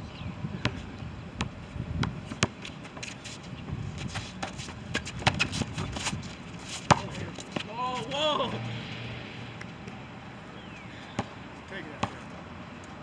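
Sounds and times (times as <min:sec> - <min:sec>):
basketball bouncing on concrete: 0:01.4 - 0:02.6, 0:04.4 - 0:06.0, 0:06.9 - 0:07.7, 0:11.2 - 0:12.2.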